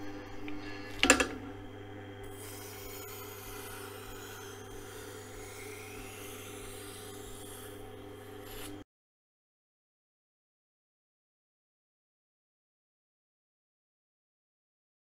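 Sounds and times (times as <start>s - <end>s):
grinder motor hum: 0.0s - 8.8s
knife scraping on grinding wheel: 0.7s - 8.8s.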